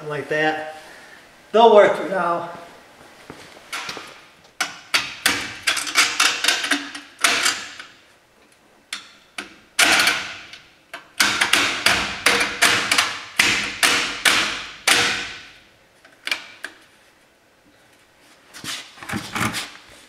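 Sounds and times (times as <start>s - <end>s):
sharp metallic knocks: 11.2s - 15.6s.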